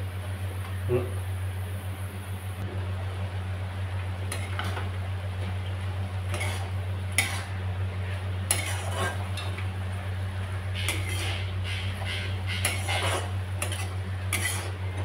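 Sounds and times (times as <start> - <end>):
steady low hum: 0.0 - 15.0
spatula scraping metal pan: 6.3 - 7.6, 8.5 - 9.2, 10.8 - 14.8.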